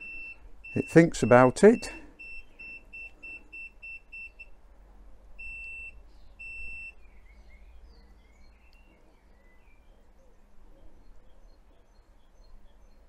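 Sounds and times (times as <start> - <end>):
electronic beeper beeping: 0.0 - 4.4
faint birdsong: 0.0 - 13.0.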